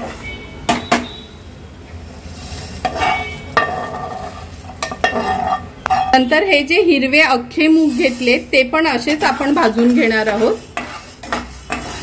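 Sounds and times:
lentils rattling in a pan: 7.6 - 12.0.

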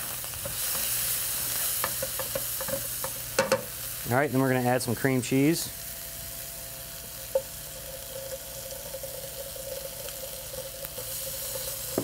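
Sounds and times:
vegetables sizzling in a frying pan: 0.0 - 12.0.

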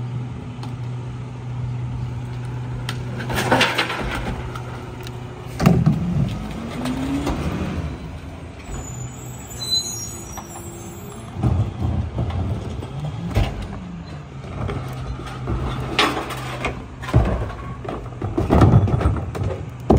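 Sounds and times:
trash cart banging on hopper: 3.1 - 4.8, 5.5 - 7.6, 11.3 - 13.8, 14.4 - 19.9.

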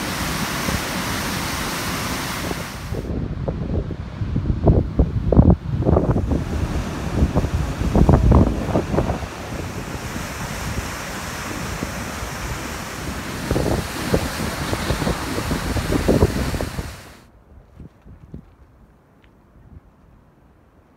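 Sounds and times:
waterfall rushing: 0.0 - 3.2, 5.6 - 17.2
wind buffeting microphone: 0.0 - 18.9.

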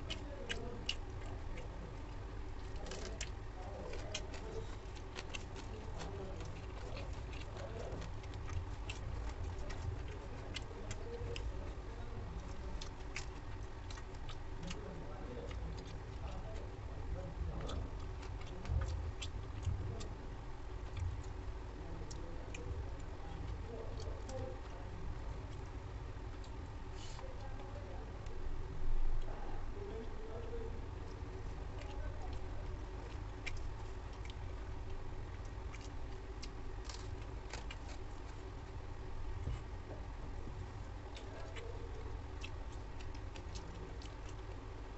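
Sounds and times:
fingers clicking on rice: 0.0 - 27.8, 40.8 - 44.9
chewing: 0.0 - 28.4, 29.2 - 44.9
steady low hum: 0.0 - 44.9.

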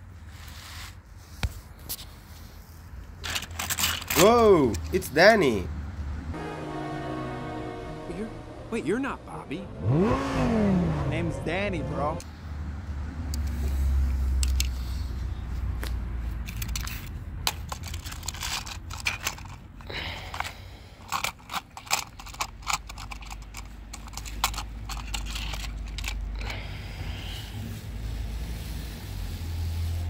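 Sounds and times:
toy cars clicking and clattering: 3.2 - 5.1, 13.3 - 14.8, 16.4 - 26.7
low rumble: 6.4 - 12.2.

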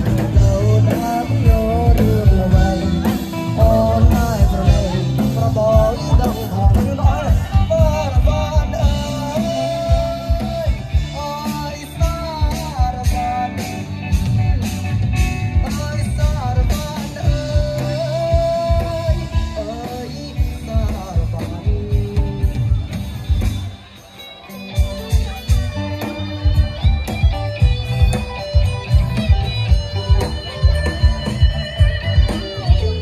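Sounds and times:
person singing: 0.0 - 14.6, 15.5 - 22.9
drum beat: 0.0 - 33.0
electric guitar: 0.0 - 33.0.

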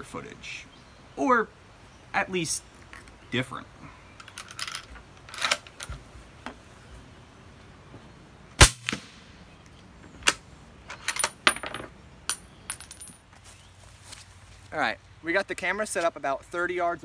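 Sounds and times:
sharp loud crack: 8.6 - 9.3.

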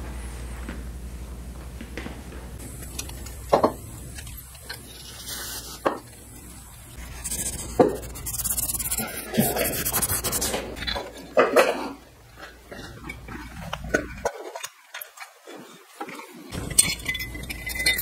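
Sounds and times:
rubbing and scraping: 3.6 - 6.1, 6.9 - 14.7.

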